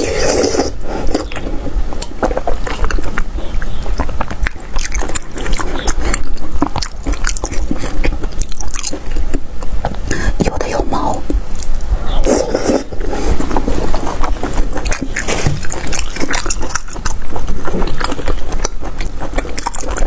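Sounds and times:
wet chewing: 0.0s - 20.0s
loud bite: 14.5s - 20.0s.

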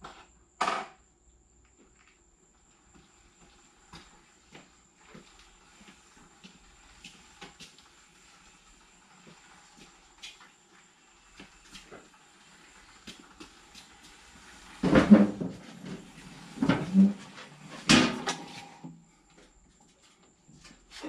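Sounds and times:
scuffs and ticks of motorcycle: 3.4s - 14.3s.

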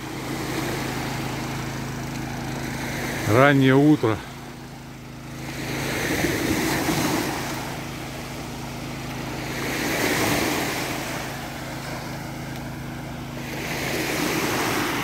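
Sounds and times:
low steady hum: 0.0s - 15.0s
small waves on sandy beach: 0.0s - 15.0s.

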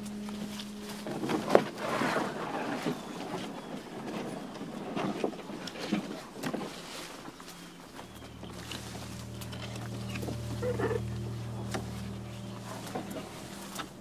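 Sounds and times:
branches scraping against canoe: 0.0s - 14.0s.

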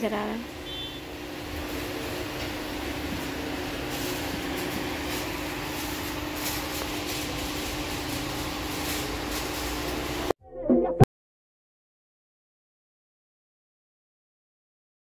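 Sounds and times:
shop room noise: 0.0s - 10.4s.

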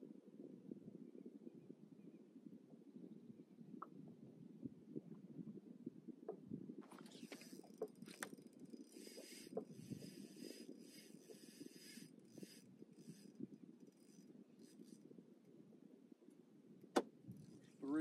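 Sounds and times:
fishing reel ratcheting: 7.2s - 14.9s.

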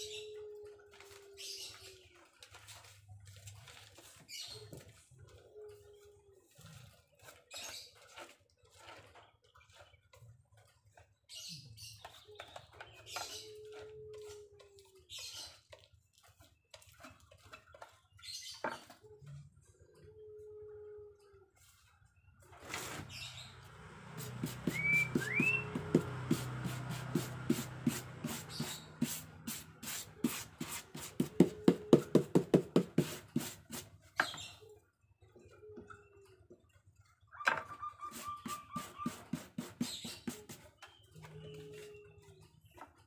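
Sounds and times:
short rising whistles: 24.2s - 25.8s.

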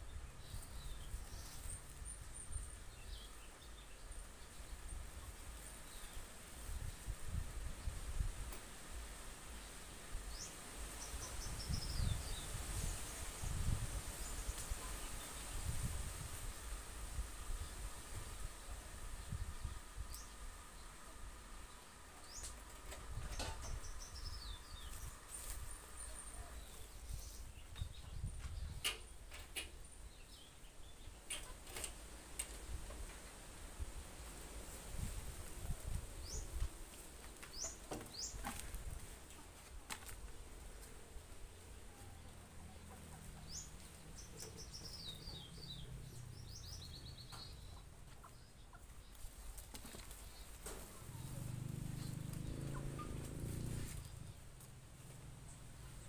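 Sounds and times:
small bird chirping: 43.3s - 56.0s.

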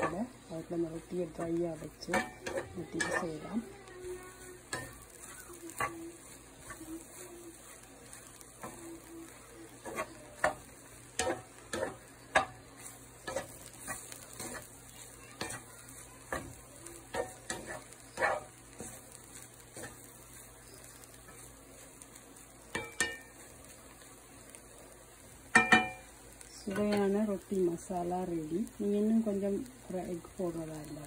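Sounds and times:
wooden spatula scraping pan: 0.0s - 9.1s, 9.8s - 22.0s
faint sizzle: 0.0s - 31.0s.

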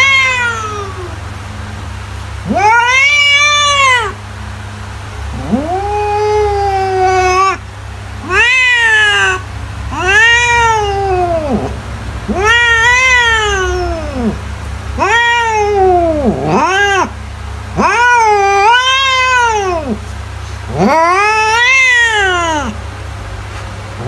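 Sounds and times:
cat meowing: 0.0s - 1.2s, 2.4s - 4.2s, 5.3s - 7.6s, 8.2s - 14.4s, 15.0s - 20.0s, 20.7s - 22.8s.

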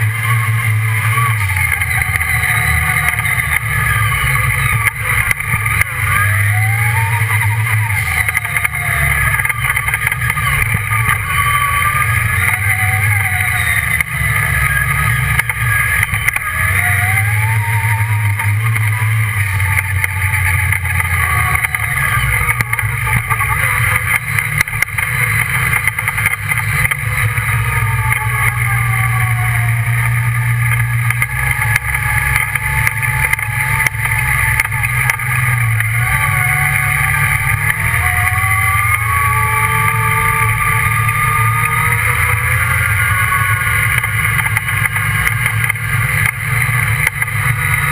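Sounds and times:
buggy engine revving: 0.0s - 47.9s.

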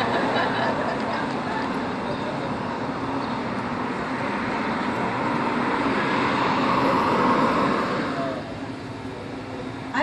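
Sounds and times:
road traffic noise: 0.0s - 10.0s
car driving past: 2.7s - 8.6s.

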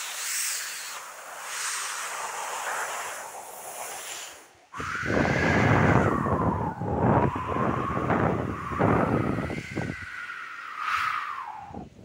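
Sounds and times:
man imitating wind with voice: 4.8s - 10.2s.

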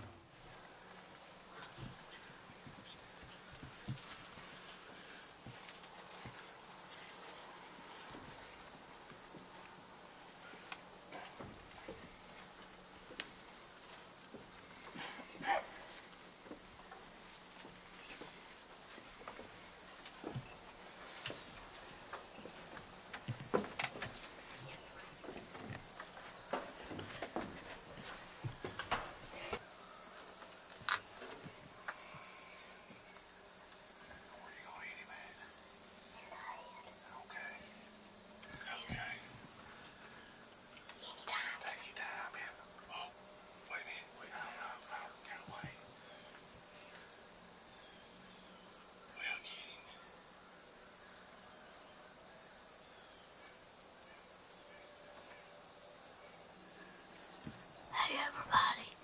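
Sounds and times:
crickets chirping: 0.0s - 59.0s
footsteps on wooden stairs: 0.8s - 9.7s, 10.5s - 29.6s.

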